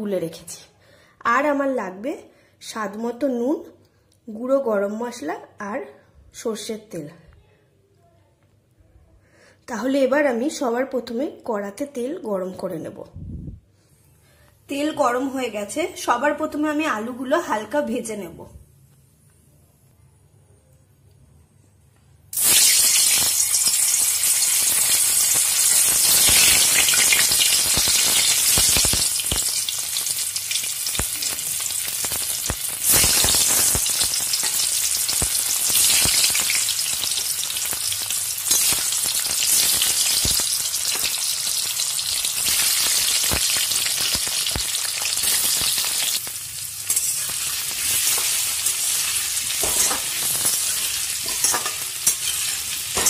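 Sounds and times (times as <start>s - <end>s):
potatoes sizzling in oil: 22.4s - 53.0s.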